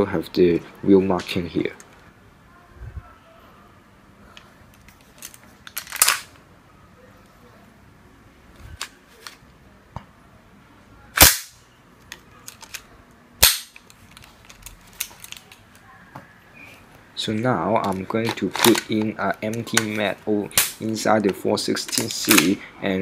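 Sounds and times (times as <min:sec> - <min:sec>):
metallic clacks of rifle parts: 0:04.8 - 0:06.3, 0:12.1 - 0:15.8.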